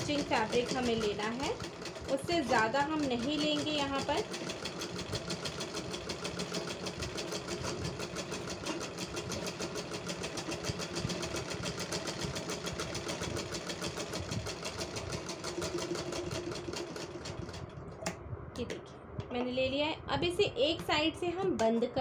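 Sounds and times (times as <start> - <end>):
sewing machine stitching: 0.0 - 17.7.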